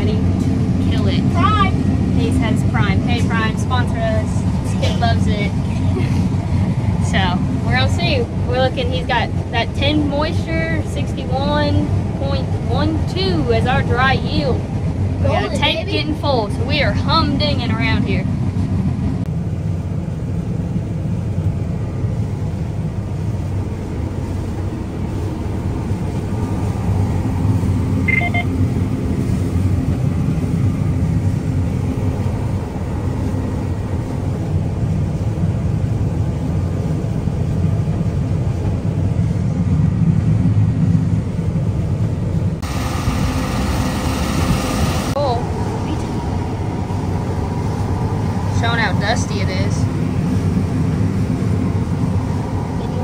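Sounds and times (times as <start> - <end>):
combine harvester engine rumble: 0.0 - 53.0
short high tone: 28.0 - 28.5.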